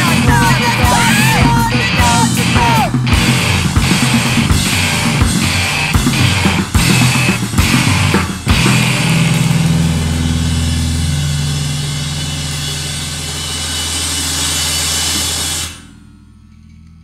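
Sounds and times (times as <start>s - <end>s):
distorted guitar chord drone: 0.0s - 16.8s.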